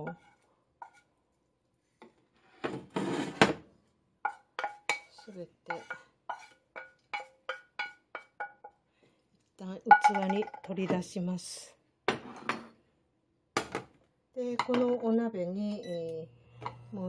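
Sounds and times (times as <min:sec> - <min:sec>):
spatula scraping frying pan: 0:00.0 - 0:01.1, 0:02.4 - 0:03.4, 0:04.2 - 0:08.8
pan knocking against ceramic bowl: 0:04.3 - 0:08.8.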